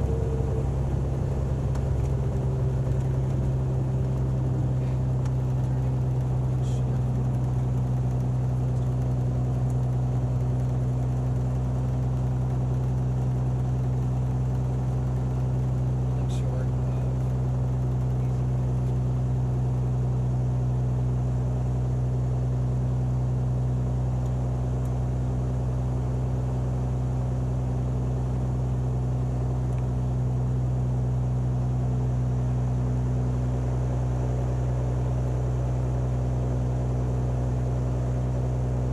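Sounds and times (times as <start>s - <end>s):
propeller plane engine drone: 0.0s - 38.9s.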